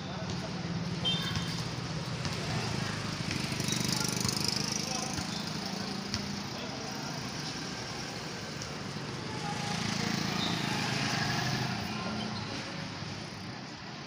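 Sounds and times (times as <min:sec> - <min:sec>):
street traffic: 0:00.0 - 0:14.0
motorcycle engine passing: 0:09.2 - 0:12.2.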